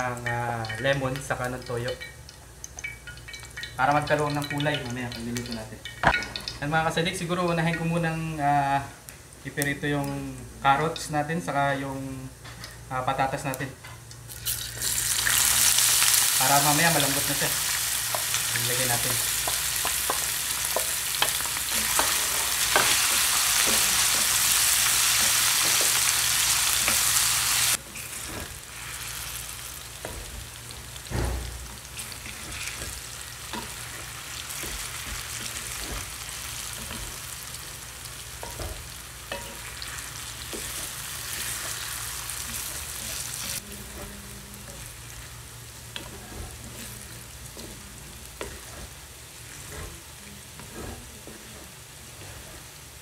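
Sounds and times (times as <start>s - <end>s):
vegetables sizzling in oil: 0.0s - 53.0s
knock on pan: 31.1s - 31.6s.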